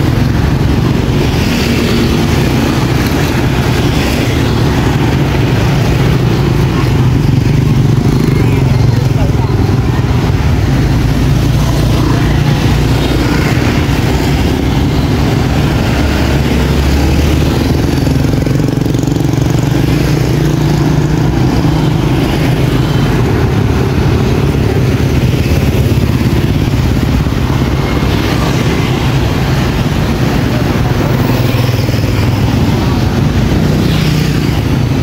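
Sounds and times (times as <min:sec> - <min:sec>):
scooter traffic: 0:00.0 - 0:35.0.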